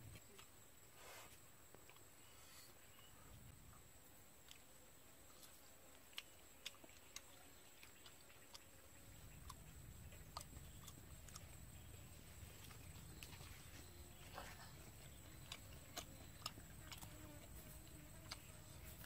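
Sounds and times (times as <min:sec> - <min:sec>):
eating clicks and smacks: 0:05.4 - 0:11.9, 0:14.7 - 0:19.0.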